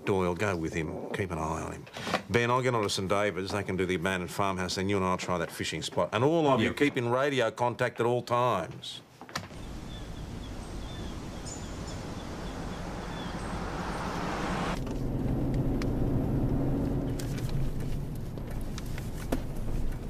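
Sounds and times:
car engine and tyre noise: 9.5 - 20.0
low engine hum inside car: 9.6 - 20.0.

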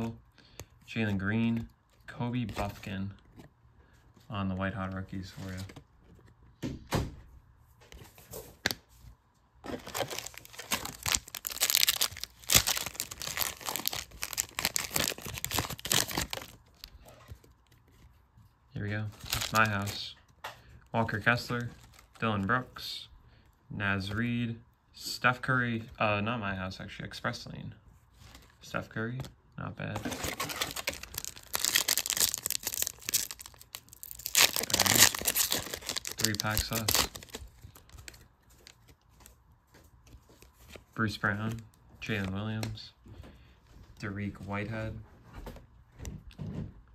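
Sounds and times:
foil wrapper crinkling: 9.7 - 17.1, 19.2 - 20.0, 30.1 - 39.0.

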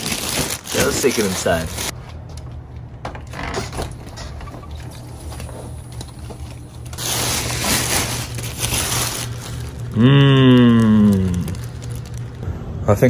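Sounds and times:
plastic bags rustling and crinkling: 0.0 - 2.0, 4.8 - 12.4.

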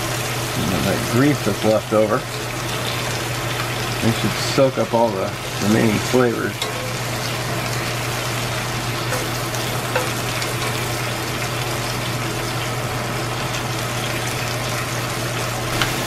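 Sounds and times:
food sizzling in a skillet: 0.0 - 16.0
steady low hum: 5.3 - 11.9.

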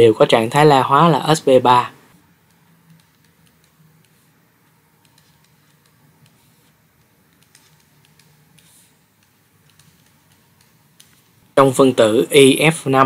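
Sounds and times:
stylus tapping on tablet: 2.4 - 11.6.

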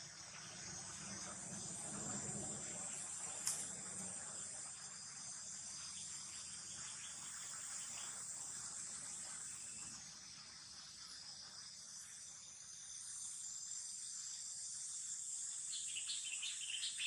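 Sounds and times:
insects chirring: 0.0 - 17.0
sharp click: 3.4 - 3.7.

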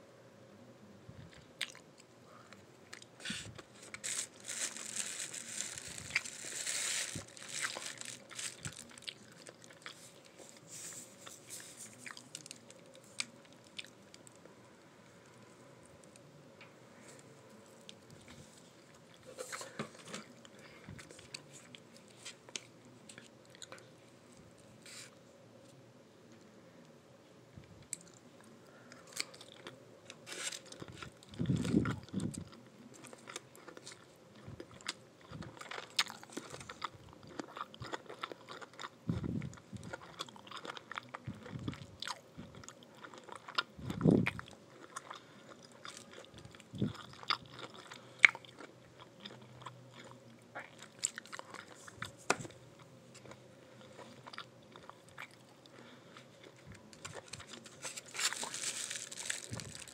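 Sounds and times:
faint steady hum: 0.0 - 59.9
person chewing and crunching food: 1.2 - 14.5, 17.8 - 24.0, 27.8 - 59.9.

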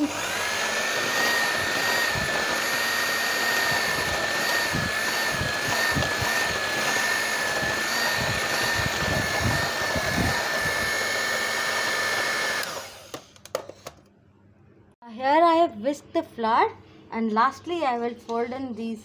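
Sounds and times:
electric hand mixer whine: 0.0 - 13.5.

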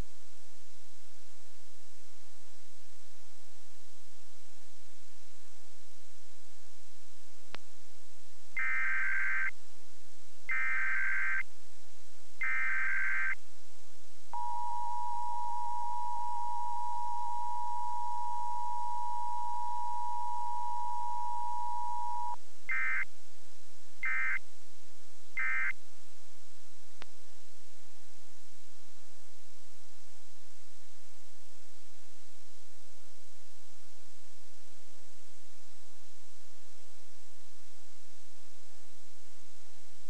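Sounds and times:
warbling data bursts: 8.6 - 9.5, 10.5 - 11.4, 12.4 - 13.4, 14.4 - 23.0, 24.0 - 24.4, 25.4 - 25.7
two-tone attention signal: 14.4 - 23.0.

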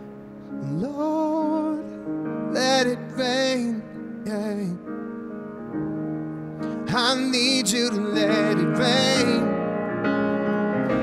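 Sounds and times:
grand piano chords: 0.0 - 11.0
man singing with vibrato: 0.6 - 5.0, 6.7 - 9.6.

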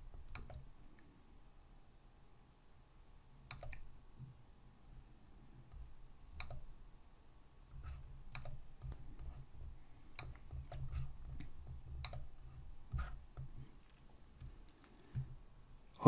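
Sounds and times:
computer mouse clicks: 0.2 - 0.7, 3.5 - 3.9, 6.4 - 6.7, 8.3 - 9.4, 10.1 - 12.3.

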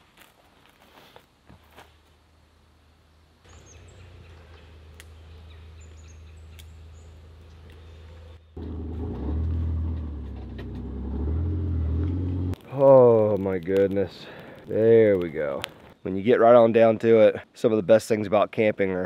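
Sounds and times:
loud uneven low rumble: 7.2 - 12.6.

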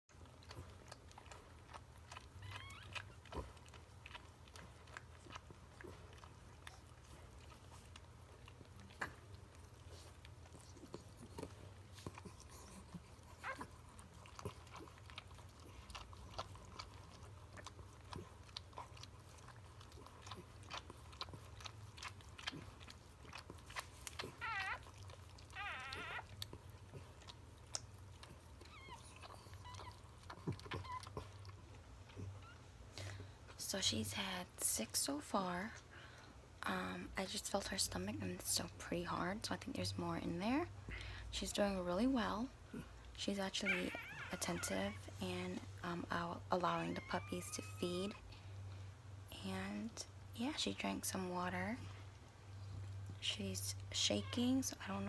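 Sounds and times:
puppy squeaking: 2.4 - 3.3, 24.2 - 26.4, 43.6 - 45.2.

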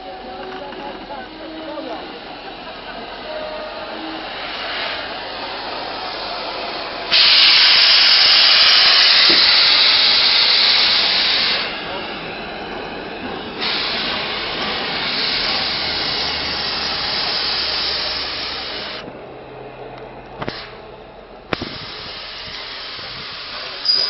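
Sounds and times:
steam hissing loudly: 1.1 - 19.0, 21.6 - 24.0.

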